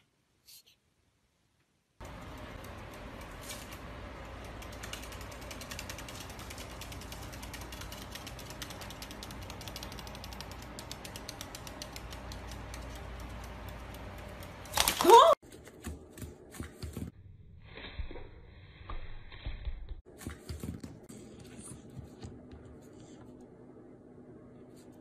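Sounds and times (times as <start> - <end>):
steady low hum: 2.0 - 14.7.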